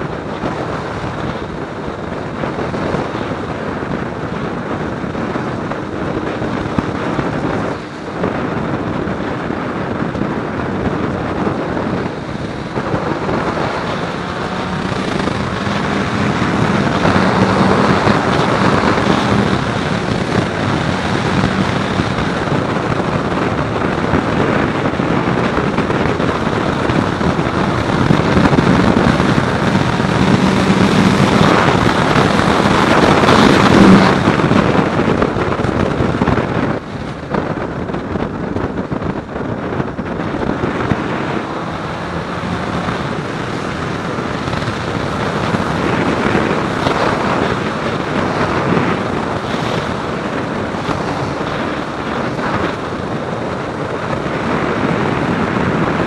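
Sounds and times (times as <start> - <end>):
motorcycle engine hum: 0.0 - 56.0
wind rush over microphone: 0.0 - 56.0.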